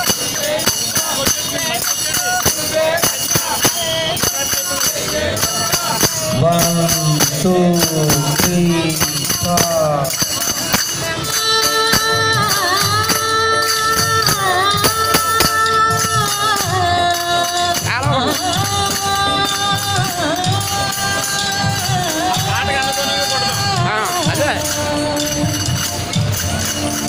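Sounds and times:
hand cymbals clinking: 0.0s - 27.0s
person singing: 5.4s - 10.2s.

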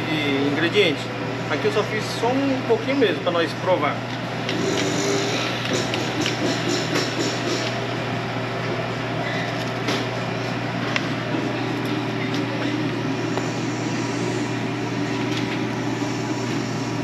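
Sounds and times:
kitchen equipment hum: 0.0s - 17.0s.

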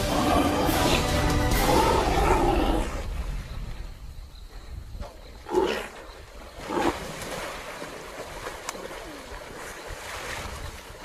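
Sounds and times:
river water splashing and churning: 0.0s - 11.0s
loud splashes: 6.6s - 10.8s.

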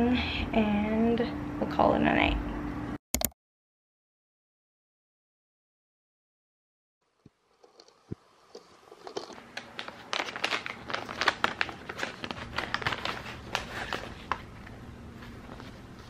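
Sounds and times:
scissors cutting packet: 7.6s - 14.4s
plastic wrappers crinkling: 7.6s - 16.0s.

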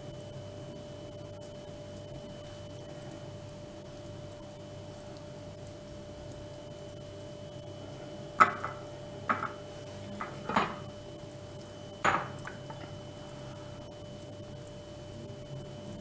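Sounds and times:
faint steady hum: 0.0s - 16.0s
kitchenware clinking: 8.4s - 9.6s, 10.2s - 10.8s, 12.0s - 12.9s.

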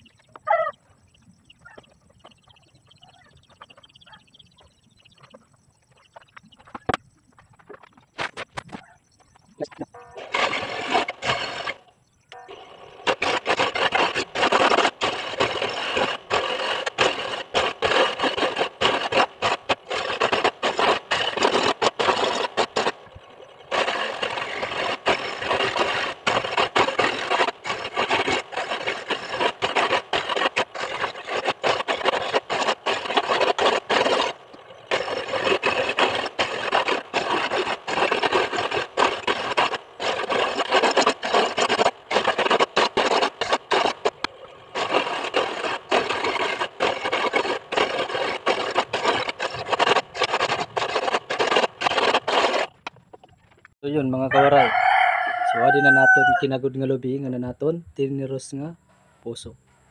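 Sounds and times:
coconut grater rasping: 10.2s - 11.8s, 12.4s - 23.0s, 23.6s - 52.8s.

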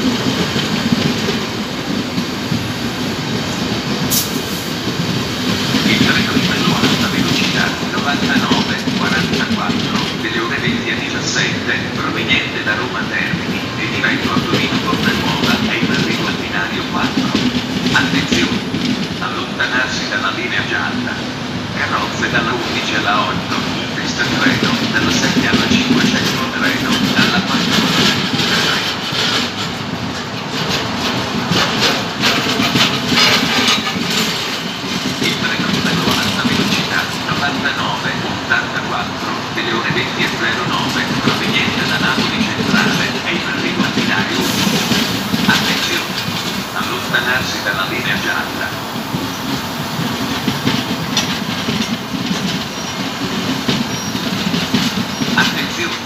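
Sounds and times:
wheels clattering over rail joints: 0.0s - 20.6s, 21.6s - 56.0s
train coaches rumbling past: 0.0s - 56.0s.

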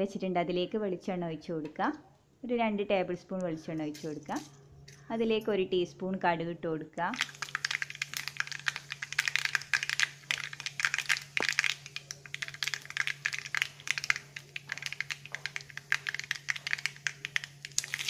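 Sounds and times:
seeds popping in hot oil: 7.1s - 18.0s.

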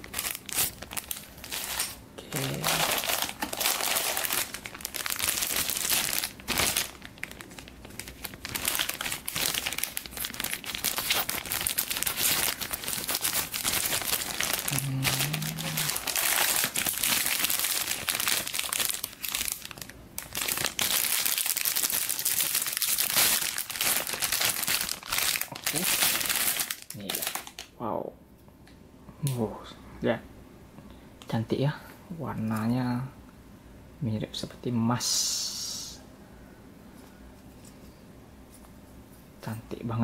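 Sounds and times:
plastic bags crinkling: 0.0s - 27.7s.

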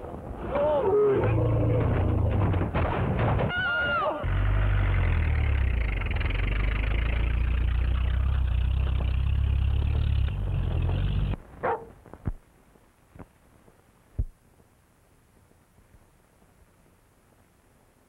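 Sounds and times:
old car engine running: 4.2s - 11.4s.

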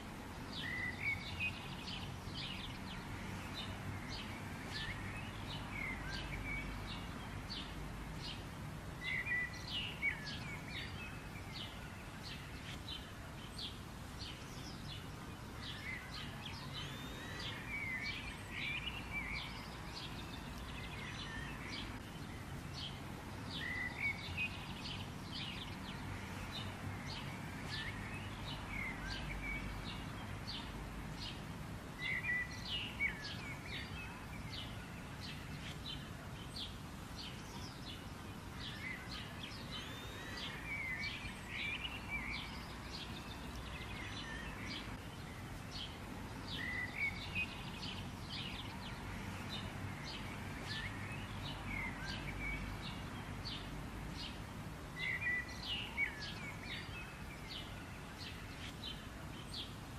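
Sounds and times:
small birds chirping: 0.0s - 59.9s.

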